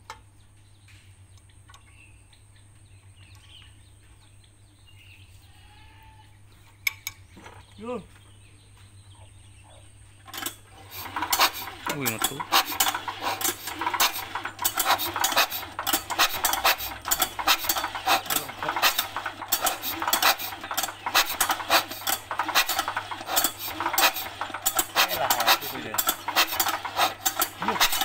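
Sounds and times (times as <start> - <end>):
metallic clicking of diesel engine: 6.8 - 7.3, 10.2 - 28.0.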